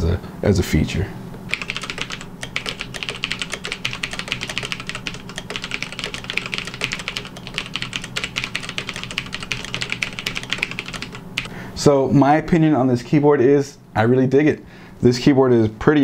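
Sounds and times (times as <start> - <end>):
fast typing on mechanical keyboard: 1.5 - 11.5.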